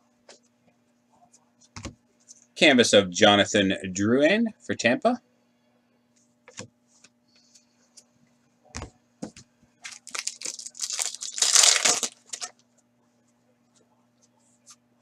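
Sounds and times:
foil wrapper crinkling and tearing: 0:09.8 - 0:12.5.

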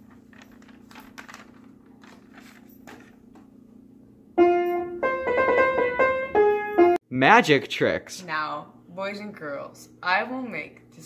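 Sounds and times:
paper rustling and crinkling: 0:00.0 - 0:03.3
piano note ringing: 0:04.4 - 0:07.0.

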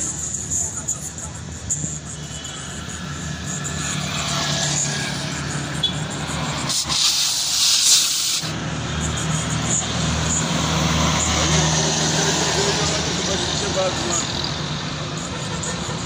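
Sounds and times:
air hissing from tyre: 0:01.8 - 0:13.9.

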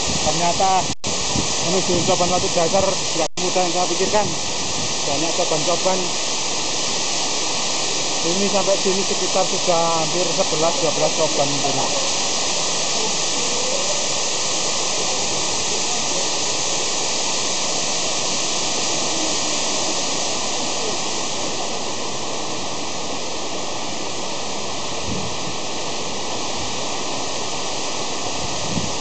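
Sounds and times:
waterfall rushing: 0:00.0 - 0:29.0.

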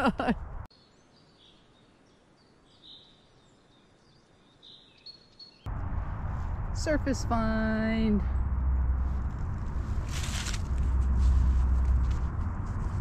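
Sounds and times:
faint bird chirps: 0:00.7 - 0:05.7.

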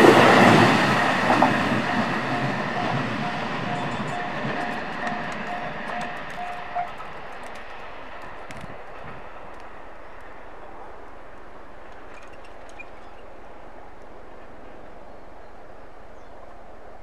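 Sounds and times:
electric train running: 0:00.0 - 0:10.3
level-crossing bell ringing: 0:01.0 - 0:07.0.

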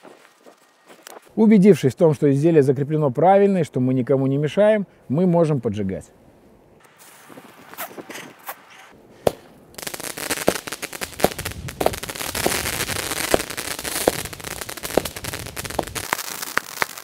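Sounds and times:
firework hissing crackle: 0:06.9 - 0:17.0
sharp firework pops: 0:09.2 - 0:17.0.

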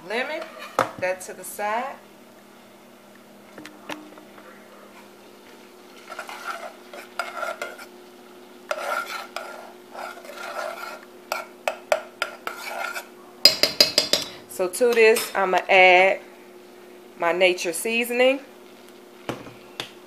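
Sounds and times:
steady low hum: 0:00.0 - 0:20.0
metal spoon scraping saucepan: 0:00.1 - 0:00.8, 0:06.0 - 0:07.9, 0:08.7 - 0:14.4.

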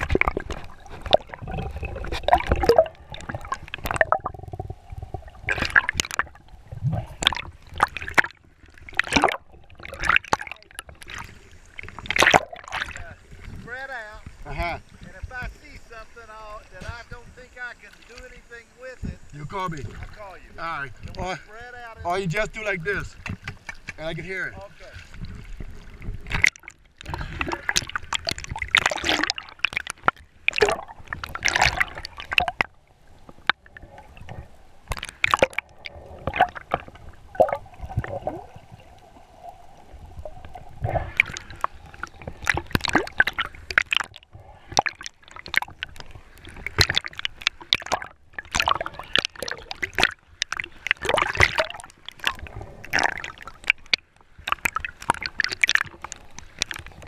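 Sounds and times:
splashes and bubbles: 0:00.0 - 0:57.0
water gurgling and sloshing: 0:00.0 - 0:57.0.

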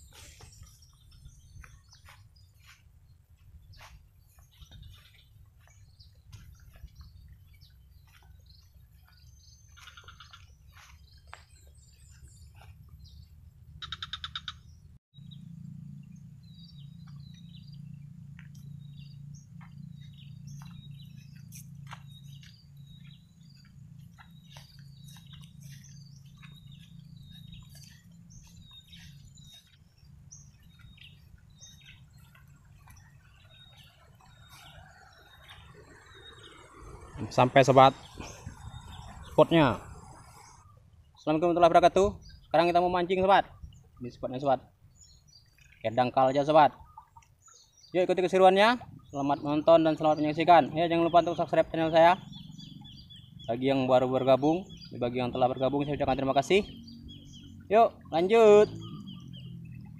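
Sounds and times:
steady low rumble: 0:00.0 - 0:41.2
small birds chirping: 0:00.0 - 0:59.9.

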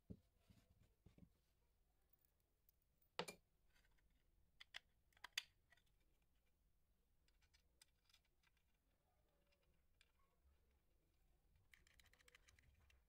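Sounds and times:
sharp clicks of small parts: 0:04.6 - 0:05.9, 0:11.7 - 0:12.7.

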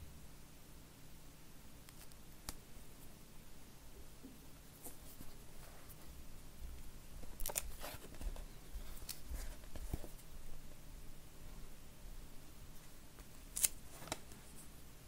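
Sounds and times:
crisp crackles and clicks: 0:07.2 - 0:10.2, 0:13.2 - 0:14.4.

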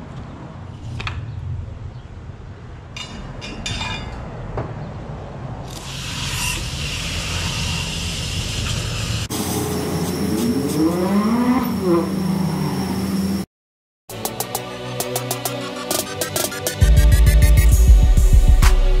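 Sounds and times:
pressure wand spraying water: 0:05.8 - 0:11.0.

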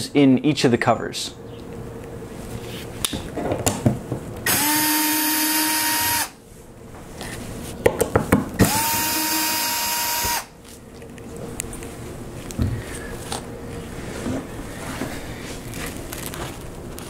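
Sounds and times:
cordless drill motor whining: 0:04.4 - 0:06.4, 0:08.6 - 0:10.6.

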